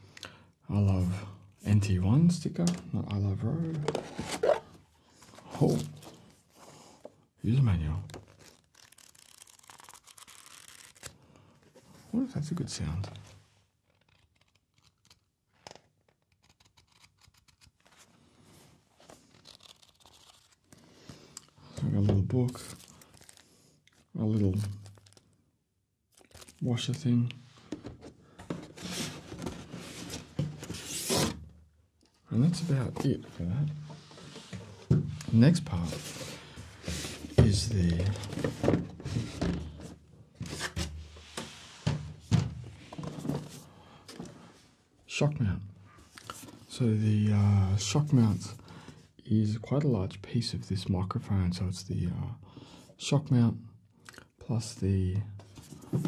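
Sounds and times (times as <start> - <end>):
paper booklet rustling: 7.8 - 11.2, 13.8 - 25.2, 26.1 - 31.3.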